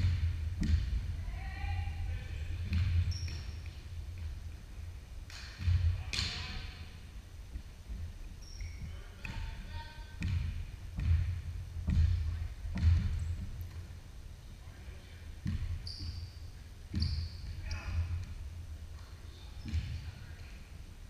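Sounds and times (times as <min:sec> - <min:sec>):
basketball bouncing on hardwood floor: 0:00.0 - 0:01.0, 0:02.6 - 0:03.8, 0:10.2 - 0:13.8, 0:15.4 - 0:16.2, 0:16.9 - 0:18.4, 0:19.6 - 0:20.0
sneakers squeaking on floor: 0:02.6 - 0:04.4, 0:08.2 - 0:13.8, 0:15.4 - 0:18.4, 0:19.0 - 0:20.5.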